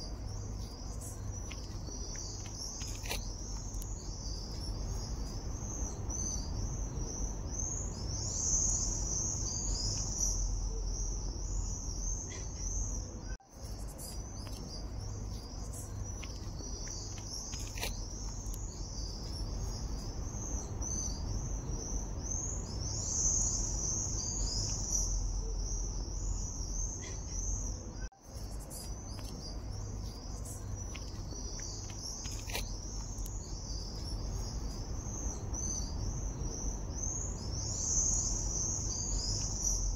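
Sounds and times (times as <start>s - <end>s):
insects chirping: 0.0s - 39.9s
low background rumble: 0.0s - 39.9s.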